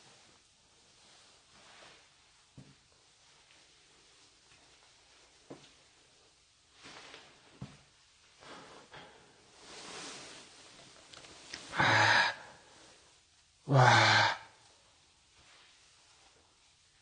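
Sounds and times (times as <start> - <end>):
faint breaths: 8.3 - 10.6, 11.5 - 14.5.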